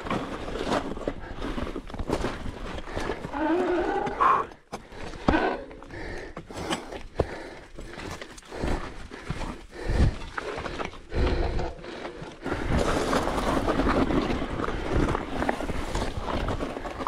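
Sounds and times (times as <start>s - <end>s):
mountain bike rattling over rocks: 0.0s - 3.4s, 7.8s - 17.0s.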